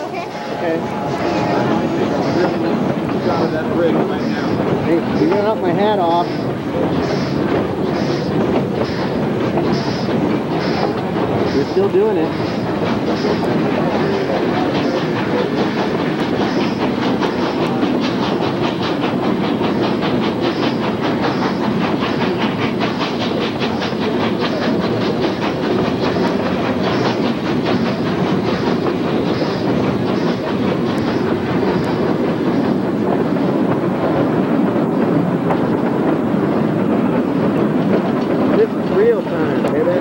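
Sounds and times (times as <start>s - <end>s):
train wheels rolling on rail: 0.0s - 40.0s.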